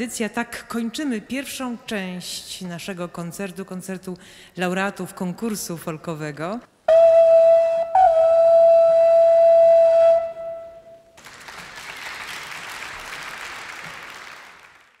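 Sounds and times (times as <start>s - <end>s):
audience applause: 11.2s - 15.0s.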